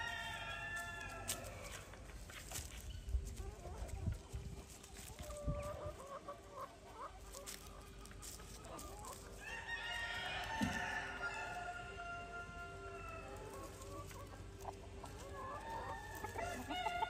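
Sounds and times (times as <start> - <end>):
chickens clucking: 0.0 - 17.0
rooster crowing: 9.4 - 13.3.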